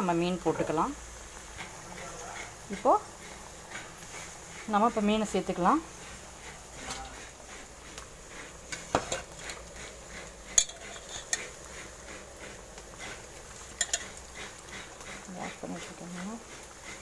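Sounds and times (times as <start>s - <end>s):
metal bowl and pot clinking: 10.6s - 11.4s, 13.8s - 14.2s.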